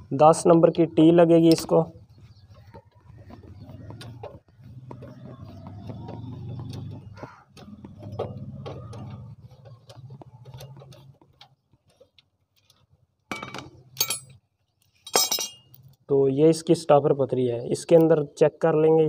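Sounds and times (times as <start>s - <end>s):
metal clinking: 12.6s - 14.4s, 15.0s - 16.0s.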